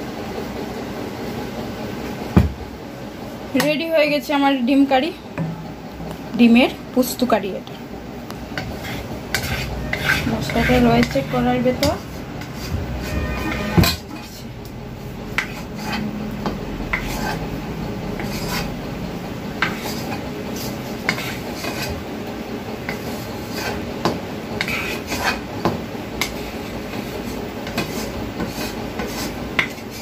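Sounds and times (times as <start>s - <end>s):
spatula scraping a wok: 8.5s - 30.0s.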